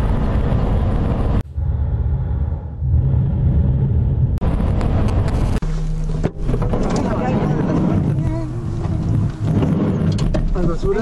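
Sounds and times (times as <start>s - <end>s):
car cabin road and engine noise: 3.8s - 11.0s.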